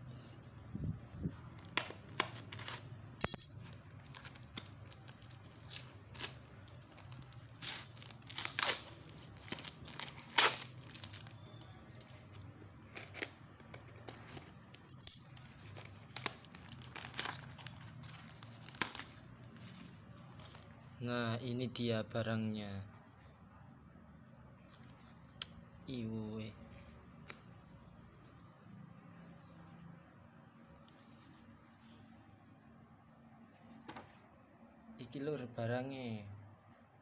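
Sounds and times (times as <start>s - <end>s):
faint low hum: 0.0s - 37.0s
cardboard and tape ripping: 1.6s - 2.9s, 4.0s - 11.4s, 15.4s - 19.9s.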